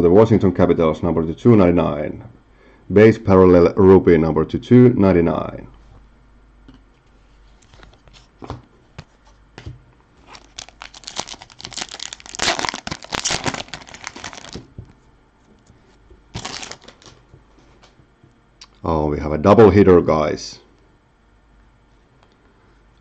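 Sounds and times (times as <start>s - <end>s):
foil wrapper crinkling and tearing: 10.2s - 14.7s, 16.3s - 17.2s.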